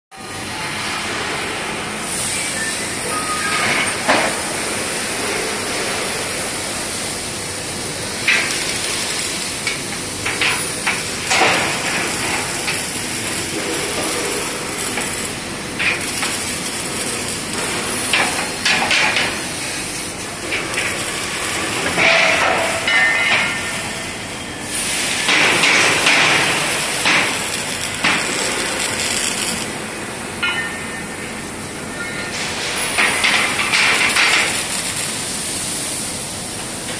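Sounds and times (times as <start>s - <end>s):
workshop din: 0.2s - 35.4s
metal clanks and knocks: 21.8s - 23.8s.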